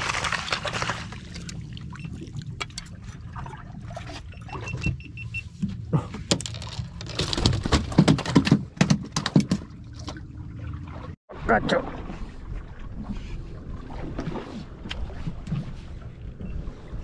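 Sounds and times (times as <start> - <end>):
fish flopping on boat deck: 0.0 - 2.6
net and jig clattering: 6.3 - 10.2.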